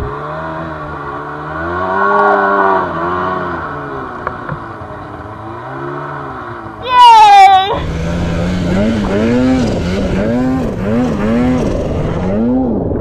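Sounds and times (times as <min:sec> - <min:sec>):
snowmobile engine revving: 0:00.0 - 0:13.0.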